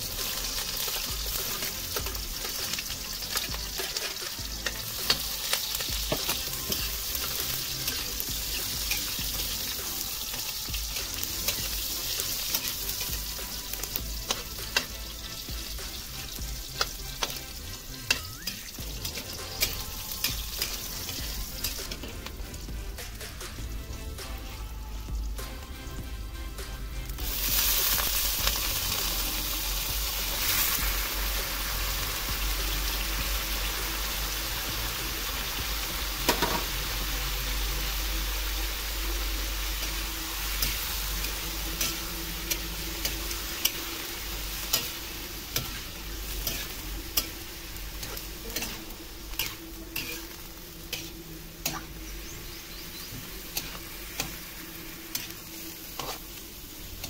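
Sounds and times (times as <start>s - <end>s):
squid sizzling in hot oil: 0.0s - 25.3s, 27.0s - 57.0s
metal spatula scraping a wok: 0.3s - 23.5s, 39.7s - 57.0s.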